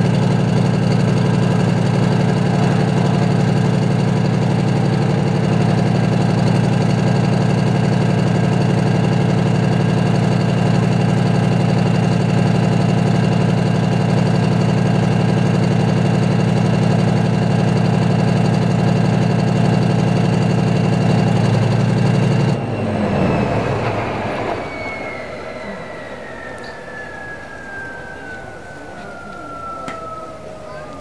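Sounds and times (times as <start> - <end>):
high whine winding down: 0.0 - 31.0
tank engine idling: 0.0 - 31.0.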